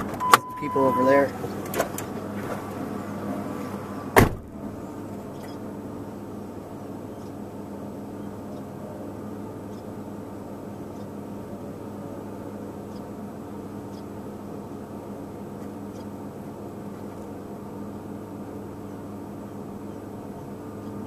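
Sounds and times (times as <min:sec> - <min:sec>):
car engine idling: 0:00.0 - 0:21.0
sharp thump: 0:04.2 - 0:04.5.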